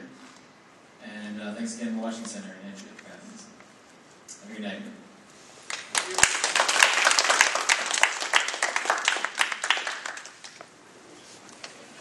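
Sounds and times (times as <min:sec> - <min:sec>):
audience applauding: 0:05.7 - 0:10.7.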